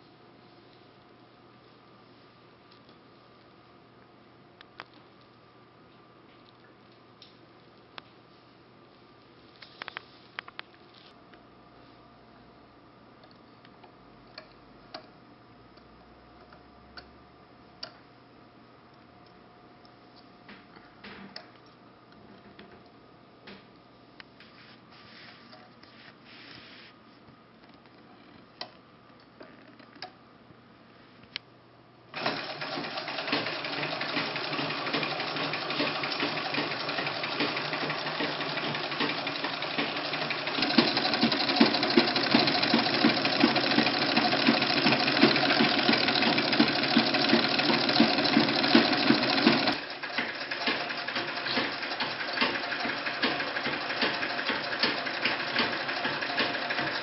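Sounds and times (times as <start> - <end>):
sewing machine clattering: 32.2 - 57.0.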